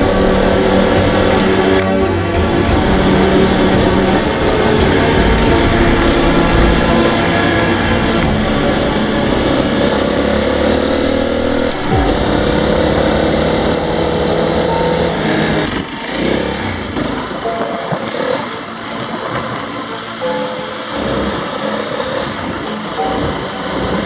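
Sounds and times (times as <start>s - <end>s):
motorcycle engine running: 0.0s - 18.6s.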